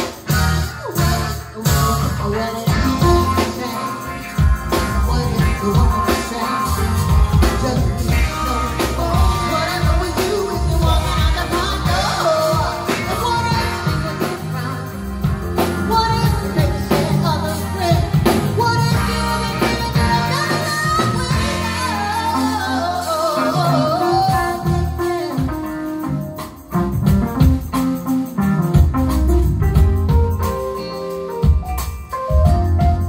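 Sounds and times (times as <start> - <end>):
soul band playing: 0.0 - 33.0
tambourine shaken: 0.0 - 33.0
woman singing: 0.7 - 26.0.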